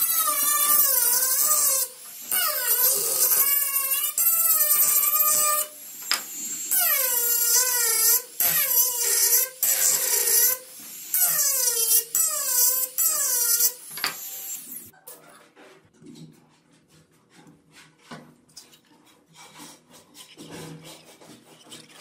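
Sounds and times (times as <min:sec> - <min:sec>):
rotary tool motor whine: 0:00.0 - 0:14.9.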